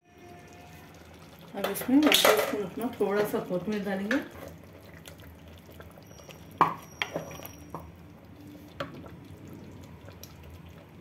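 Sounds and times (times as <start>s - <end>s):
spatula stirring wet gravy: 3.0s - 11.0s.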